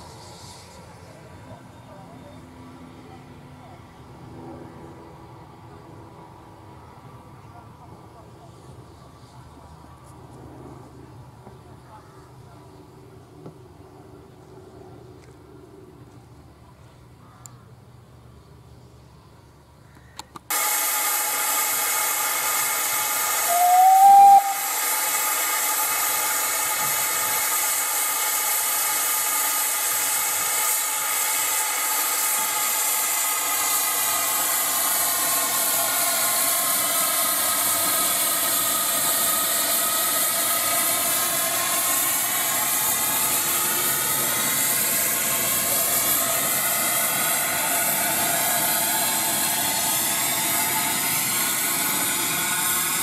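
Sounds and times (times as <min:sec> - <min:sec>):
steam hissing: 0:00.0 - 0:02.4, 0:20.5 - 0:53.0
rising whistle note: 0:20.5 - 0:25.0.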